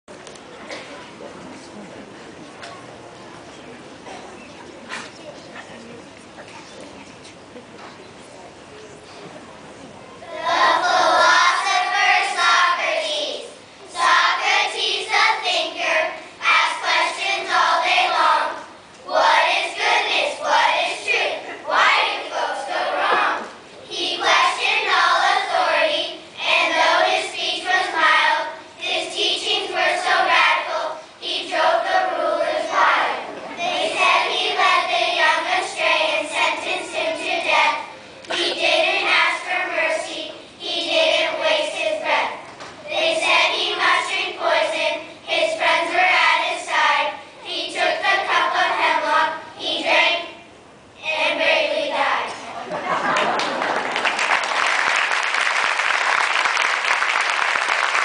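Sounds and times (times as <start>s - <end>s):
children's choir singing: 10.2s - 55.8s.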